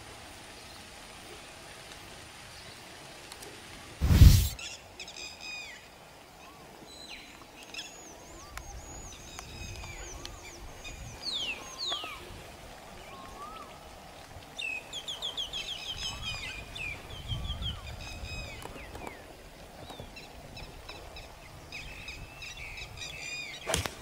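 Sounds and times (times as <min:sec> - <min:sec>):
sharp crack: 0:23.7 - 0:24.0.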